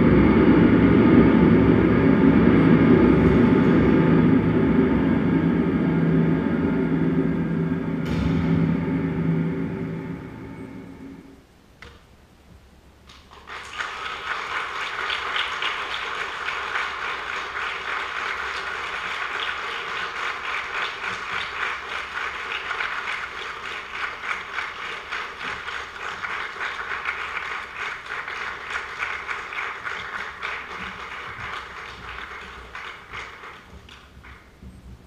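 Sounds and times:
audience applauding: 13.2s - 34.5s.

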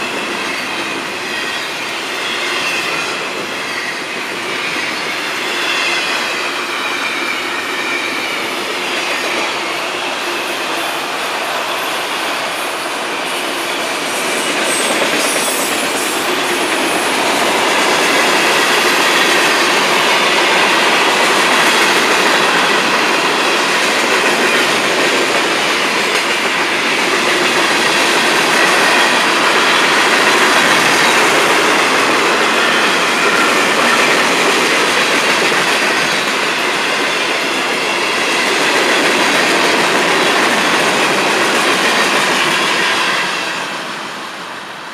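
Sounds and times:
freight train wheels on rails: 0.0s - 44.9s.

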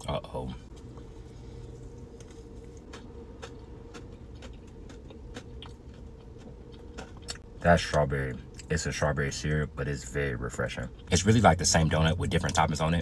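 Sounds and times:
person chewing: 0.8s - 7.5s.

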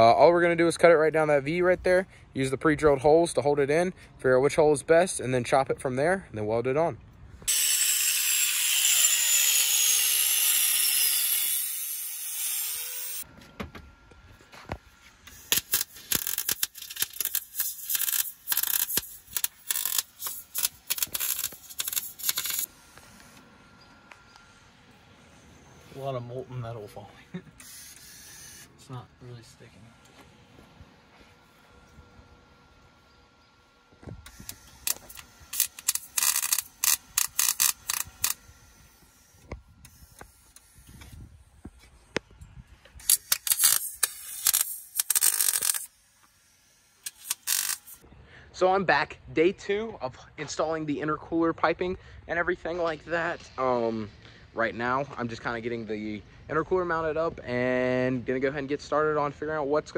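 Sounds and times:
angle grinder cutting steel: 7.5s - 13.2s, 15.2s - 23.1s, 34.3s - 41.0s, 43.0s - 48.0s
welder arc crackling: 15.2s - 23.4s, 34.2s - 40.9s, 43.0s - 48.0s.

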